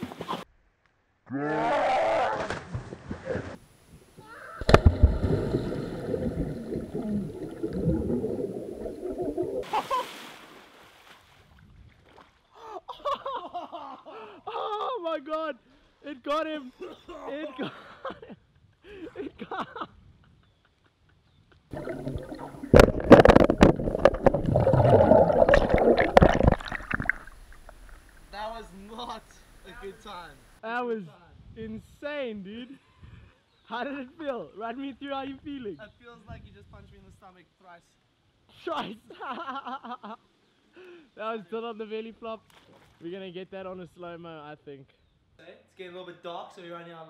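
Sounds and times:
sharp underwater knocks: 4.6s - 9.7s, 21.8s - 28.1s
muffled underwater churning: 4.7s - 9.7s, 21.7s - 28.4s.

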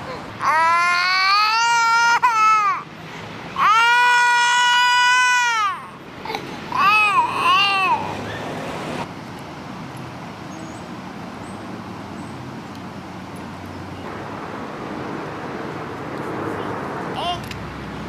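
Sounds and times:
distant road traffic hum: 0.0s - 18.0s
baby crying: 0.1s - 2.8s, 3.6s - 8.2s.

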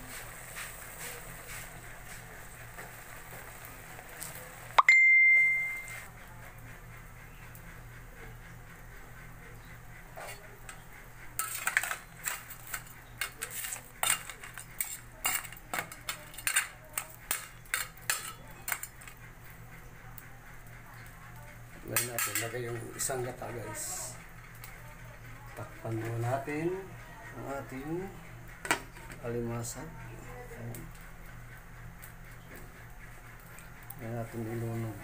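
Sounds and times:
metal utensil clanging on pot: 11.4s - 19.2s, 21.9s - 22.7s.

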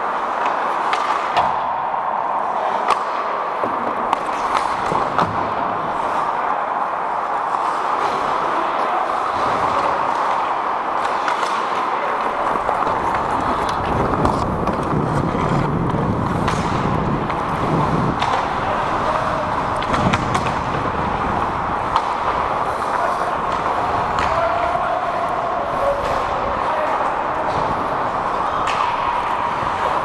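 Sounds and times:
hockey sticks and puck clacking: 0.0s - 30.0s
steady noisy hiss: 0.0s - 30.0s
skate blades scraping ice: 4.0s - 30.0s
wind rumble on microphone: 12.6s - 22.7s.

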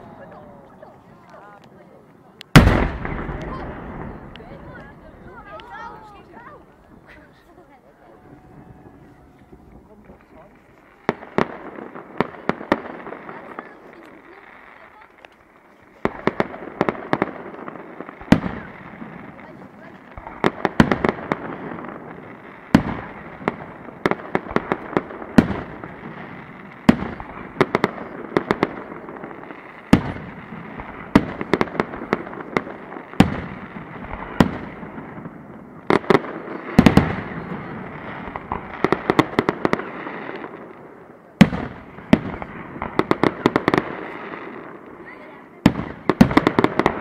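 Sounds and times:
crackling rumble: 0.0s - 7.6s.

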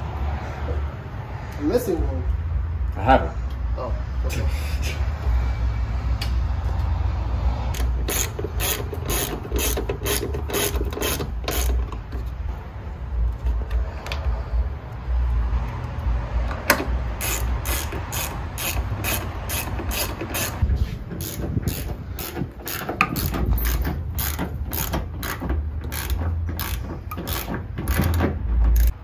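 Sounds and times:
ratchet wrench clicking: 7.7s - 12.0s, 16.5s - 20.6s, 21.2s - 29.0s.

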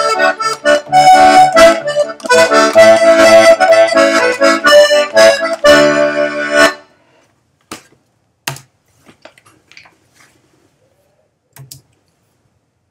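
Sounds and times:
button accordion chord: 0.0s - 6.9s
accordion being handled: 0.0s - 9.5s.

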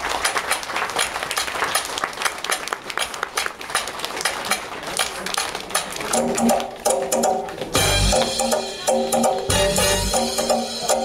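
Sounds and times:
hand clapping: 0.0s - 8.4s
pitched music: 6.2s - 11.0s.

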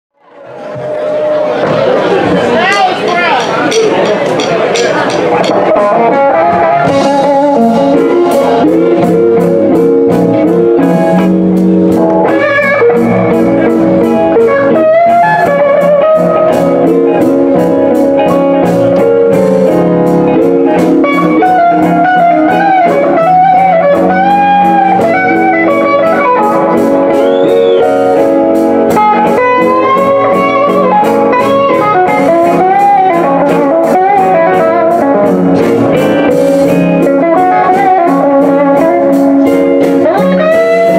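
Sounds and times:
blues band playing: 0.3s - 40.9s
electric guitar bent notes: 0.5s - 40.9s
cymbal beat: 2.6s - 5.8s.

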